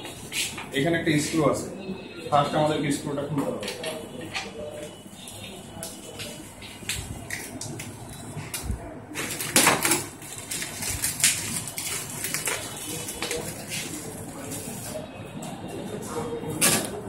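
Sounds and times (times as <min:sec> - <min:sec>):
packing tape crackling and rustling: 0:05.8 - 0:15.0.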